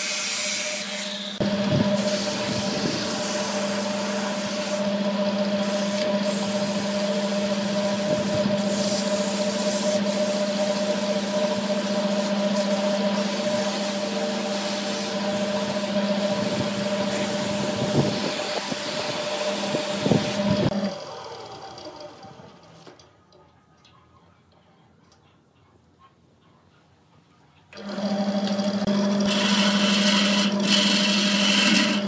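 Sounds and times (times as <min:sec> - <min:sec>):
hiss of spinning wood: 0:00.0 - 0:04.8, 0:05.6 - 0:11.4, 0:12.1 - 0:20.7
lathe motor hum: 0:00.2 - 0:22.6, 0:27.8 - 0:32.0.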